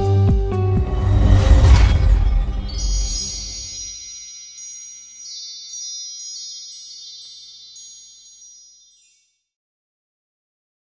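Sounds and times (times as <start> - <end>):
low rumble: 0.5 - 4.1
high chime-like tones: 1.2 - 9.4
light tinkling strikes: 2.0 - 9.4.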